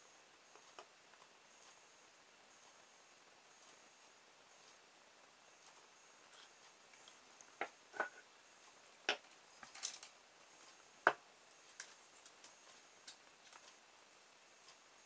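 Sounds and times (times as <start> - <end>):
wires and circuit board clicking: 11.7 - 13.8.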